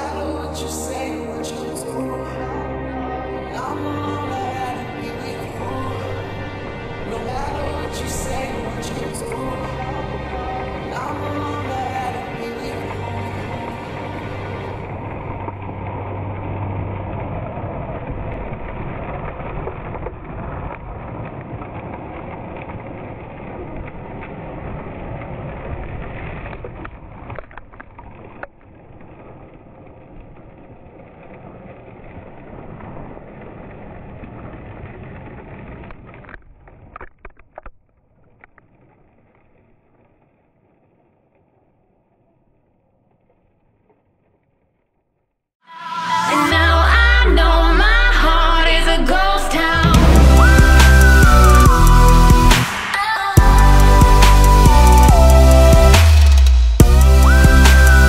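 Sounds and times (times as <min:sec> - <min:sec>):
electric drivetrain whine: 0:02.0 - 0:36.4
tyres scrabbling on gravel: 0:03.5 - 0:41.6.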